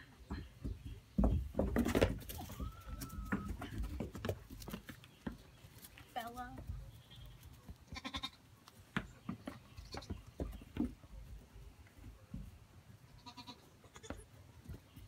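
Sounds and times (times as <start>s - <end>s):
hooves knocking on wooden floor: 0.1s - 6.8s, 8.7s - 12.6s
goat kid bleating: 7.1s - 8.4s, 13.1s - 14.3s.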